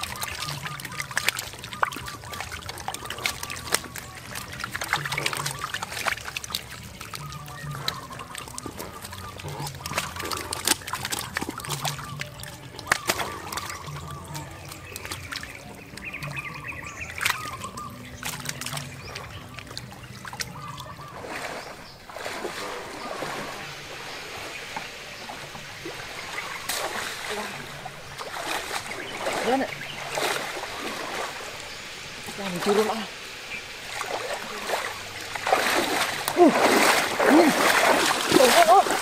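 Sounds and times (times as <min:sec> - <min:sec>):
wet slaps and clicks: 0:00.0 - 0:16.5, 0:17.1 - 0:20.9
water and mud splashing: 0:00.0 - 0:39.0.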